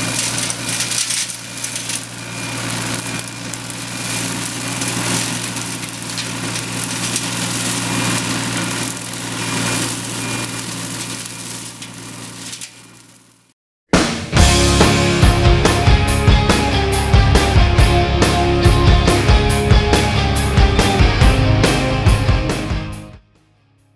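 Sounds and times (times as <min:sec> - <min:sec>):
excavator engine running: 0:00.0 - 0:13.5, 0:14.4 - 0:23.1
flail mower cutting brush: 0:00.0 - 0:13.5.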